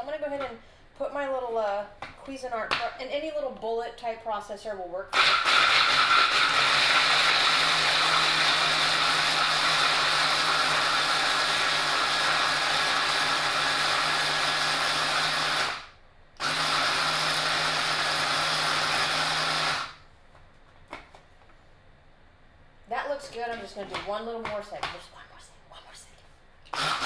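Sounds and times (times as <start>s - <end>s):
electric food chopper motor: 5.1s - 20.0s, 26.7s - 27.0s.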